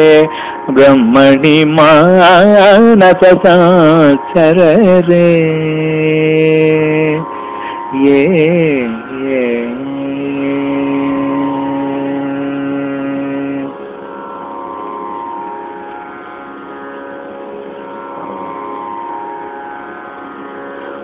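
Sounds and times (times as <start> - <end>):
man singing long vowel: 0.0 - 7.3, 7.9 - 13.8
steady drone: 0.0 - 21.0.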